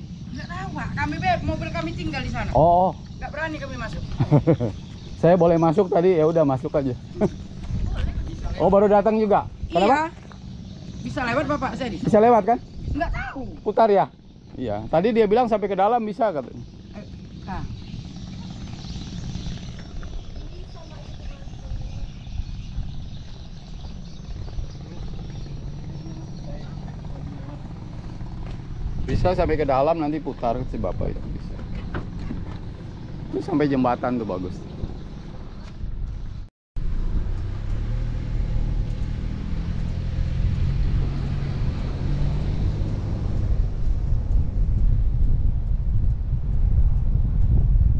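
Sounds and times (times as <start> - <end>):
wind buffeting microphone: 0.0 - 47.9
van engine idling: 13.2 - 40.1.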